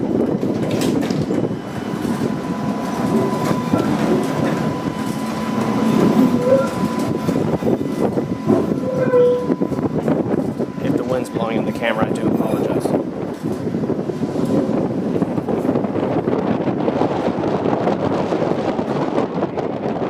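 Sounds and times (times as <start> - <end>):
streetcar wheels clattering on rails: 0.0 - 20.0
wind on microphone: 0.0 - 20.0
thin steady whine: 1.4 - 15.9
short squeaks: 8.8 - 9.6.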